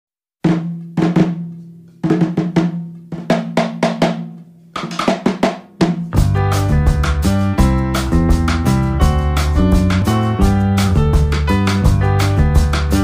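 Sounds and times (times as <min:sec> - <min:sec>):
drum hits: 0:00.5 - 0:13.0.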